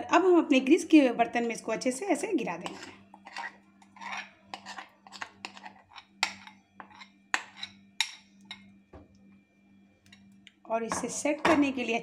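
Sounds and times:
low steady hum: 0.0 - 12.0
metal spoon scraping a bowl: 2.4 - 8.7.

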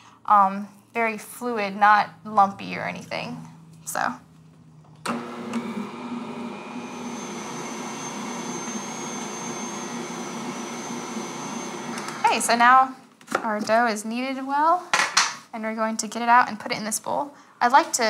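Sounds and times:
stand mixer motor running: 5.1 - 12.2.

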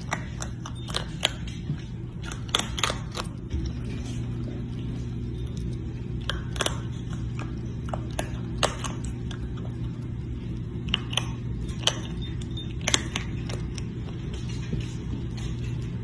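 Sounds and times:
claws clinking on ceramic bowl: 0.0 - 3.9
steady low hum: 0.0 - 16.0.

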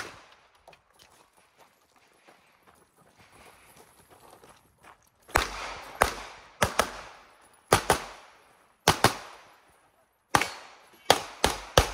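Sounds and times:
pistol shots: 5.3 - 9.5, 10.3 - 11.9.

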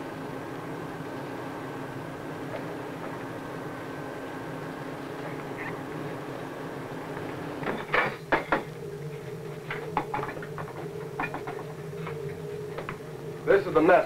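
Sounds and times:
steady low hum: 0.0 - 14.0
plates and dishes clattering: 7.6 - 8.7, 10.0 - 11.7.

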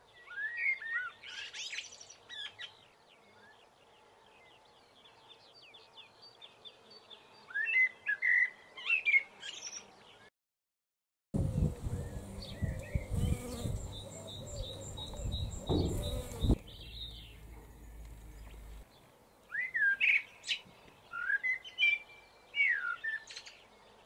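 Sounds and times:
bee buzzing: 11.4 - 18.8
songbird singing whistled phrases: 21.1 - 22.0.

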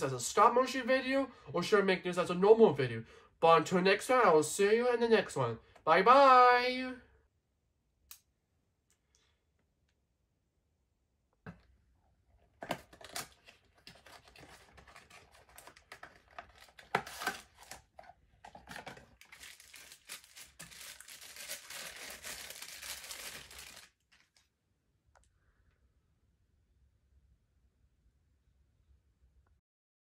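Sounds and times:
plastic packaging crinkling: 12.7 - 24.5.

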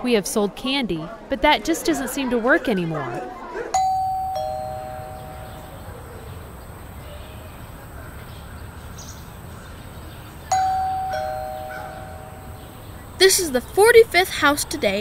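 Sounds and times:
faint background noise: 0.0 - 15.0
ding-dong doorbell chime: 3.8 - 6.1, 10.5 - 12.8.

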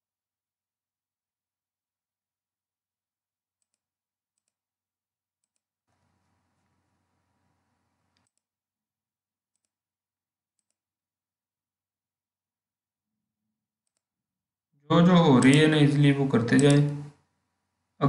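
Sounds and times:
computer mouse clicks: 3.6 - 4.6, 5.4 - 6.8, 8.0 - 8.5, 9.5 - 9.8, 10.6 - 10.8, 13.8 - 14.1, 15.4 - 15.8, 16.5 - 17.2.

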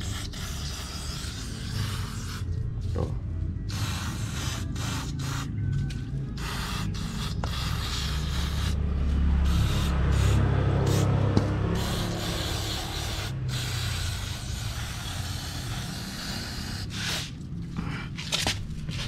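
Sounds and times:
aerosol spray hissing: 0.0 - 2.5, 3.7 - 5.5, 6.4 - 8.8, 9.4 - 17.4.

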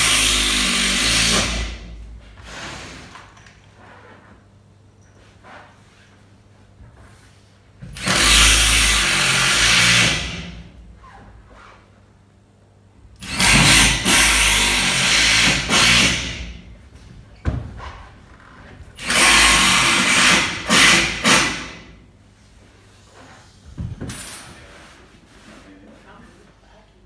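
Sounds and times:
cordless drill driving screws: 19.0 - 21.6.

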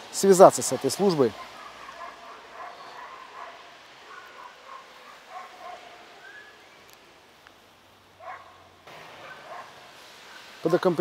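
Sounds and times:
dogs barking faintly: 1.0 - 6.6, 8.2 - 10.7.

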